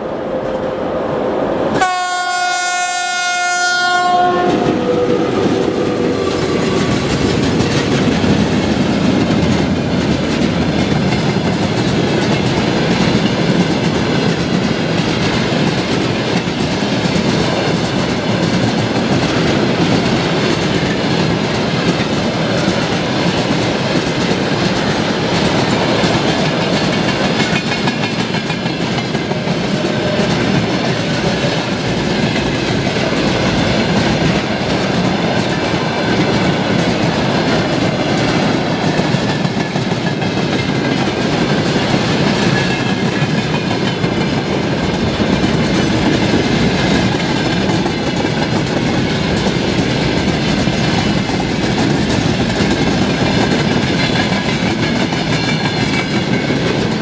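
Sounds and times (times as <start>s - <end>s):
locomotive horn blast: 1.8s - 5.3s
train wheels clattering on rails: 4.0s - 57.0s.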